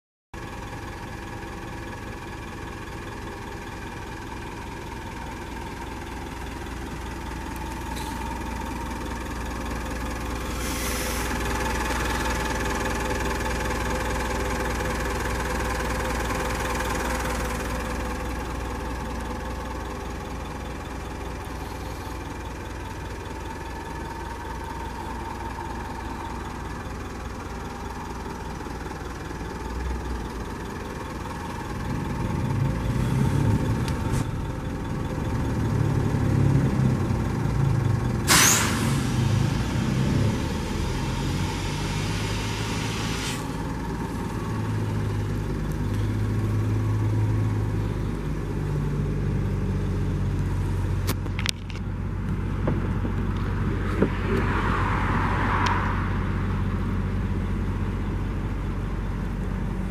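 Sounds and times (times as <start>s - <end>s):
diesel engine idling: 0.4s - 59.9s
brief hiss: 10.5s - 11.4s, 38.3s - 39.2s, 41.4s - 43.7s.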